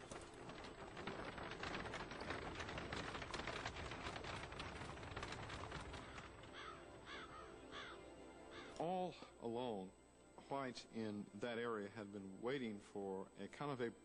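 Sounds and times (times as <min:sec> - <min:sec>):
horse-drawn buggy clattering: 0:00.0 - 0:07.3
bird cawing: 0:05.9 - 0:08.9.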